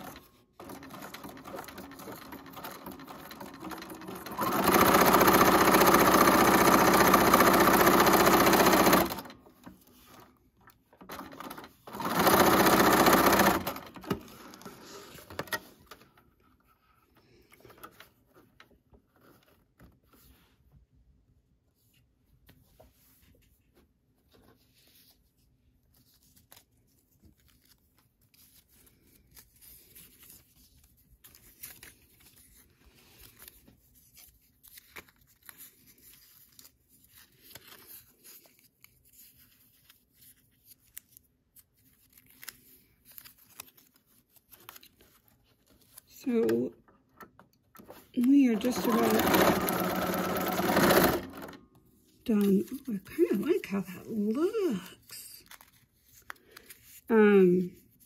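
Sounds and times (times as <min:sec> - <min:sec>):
sewing machine stitching: 0:00.0 - 0:09.4, 0:11.0 - 0:15.7, 0:47.9 - 0:51.6.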